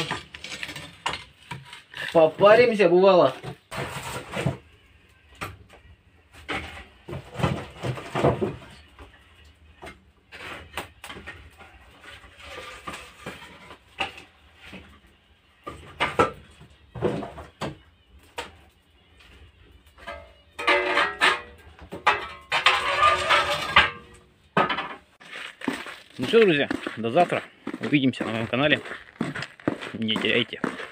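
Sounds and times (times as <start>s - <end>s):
firewood logs knocking and clattering: 0.0s - 2.7s, 6.4s - 9.1s, 20.0s - 30.9s.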